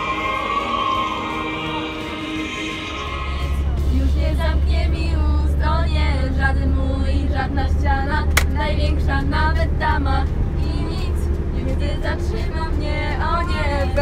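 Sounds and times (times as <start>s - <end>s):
bus engine drone: 0.0s - 14.0s
young women singing together: 0.0s - 14.0s.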